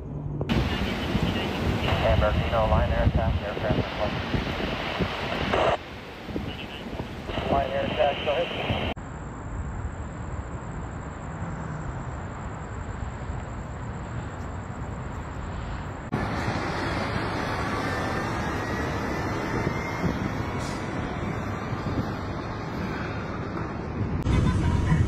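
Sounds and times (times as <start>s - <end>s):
rushing noise: 0.0s - 11.4s, 12.0s - 25.0s
faint high whine: 0.0s - 22.2s
outdoor rumble and hiss: 0.0s - 25.0s.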